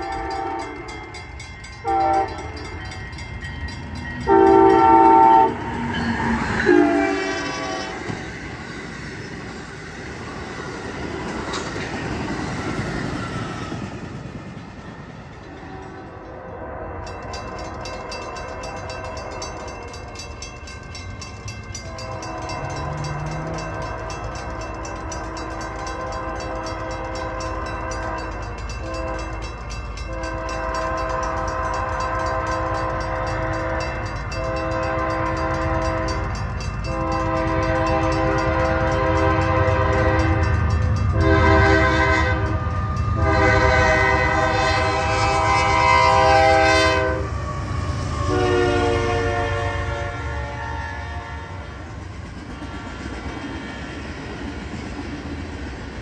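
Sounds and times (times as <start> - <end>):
locomotive horn blasts: 0.0 - 1.2, 1.8 - 2.6, 4.2 - 5.8, 6.6 - 8.1, 21.8 - 29.4, 30.0 - 47.4, 48.2 - 51.8
crossing bell ringing: 0.0 - 9.6, 14.6 - 51.8
train rumble: 0.0 - 56.0.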